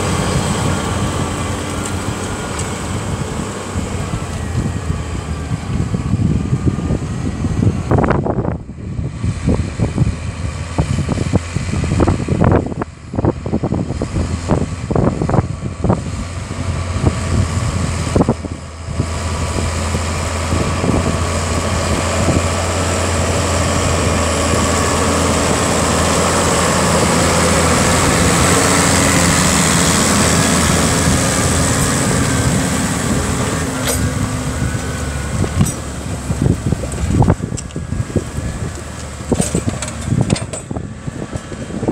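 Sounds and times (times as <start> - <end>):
tractor engine under load: 0.0 - 41.9
wind buffeting the microphone: 0.0 - 41.9.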